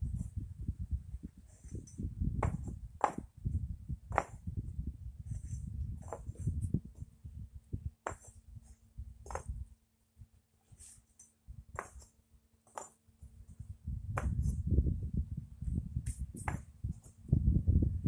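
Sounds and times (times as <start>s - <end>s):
concrete pavers clacking: 2.4s - 3.3s, 4.1s - 4.5s, 8.0s - 8.4s, 9.2s - 9.6s, 11.2s - 13.0s.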